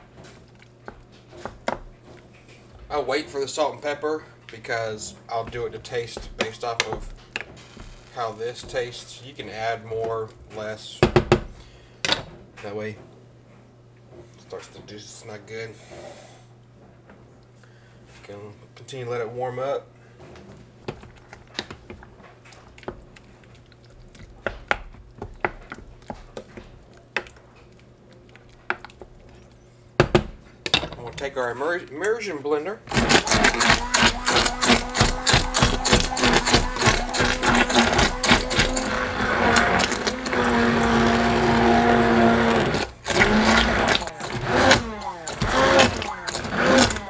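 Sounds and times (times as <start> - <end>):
mashing tomatoes: 4.5 - 11.6, 20.8 - 30.5, 32.9 - 47.0
immersion blender whining: 32.9 - 47.0.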